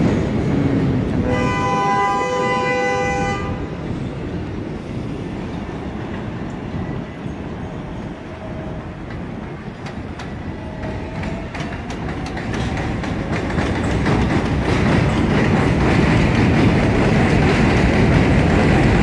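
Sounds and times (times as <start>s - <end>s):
train approaching: 0.0s - 19.0s
train wheels clicking over rail joints: 8.9s - 19.0s.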